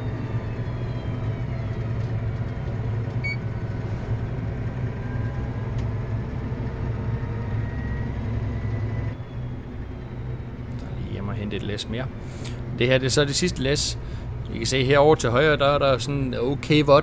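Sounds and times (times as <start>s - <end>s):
faint whining tones: 0.0s - 14.6s
tractor engine droning: 0.0s - 17.0s.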